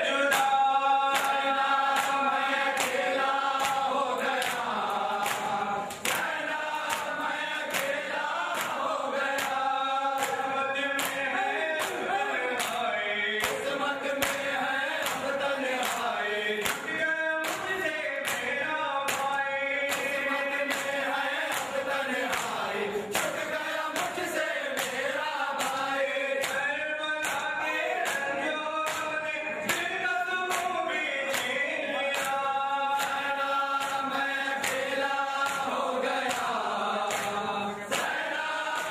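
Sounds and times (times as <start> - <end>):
men chanting in unison: 0.0 - 38.9
sharp rhythmic beats: 0.0 - 38.9.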